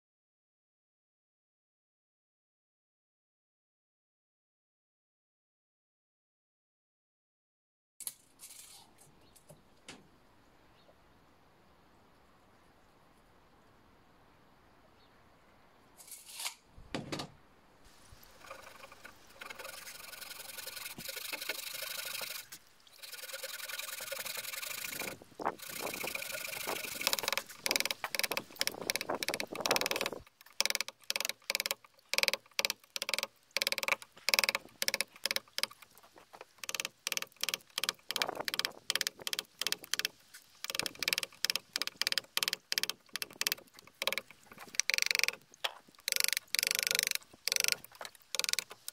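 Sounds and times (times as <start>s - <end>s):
saw cutting wood: 18.3s - 45.4s, 46.0s - 48.9s.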